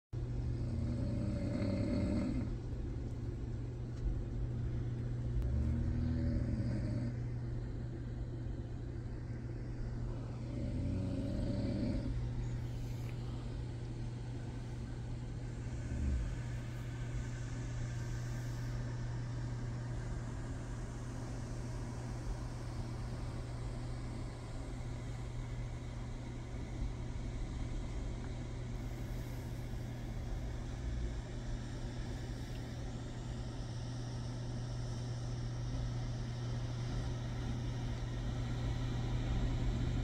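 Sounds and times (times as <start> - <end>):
steady low hum: 0.0 - 40.0
woman snoring: 0.5 - 2.5, 5.4 - 7.3, 10.3 - 13.5, 15.6 - 18.8.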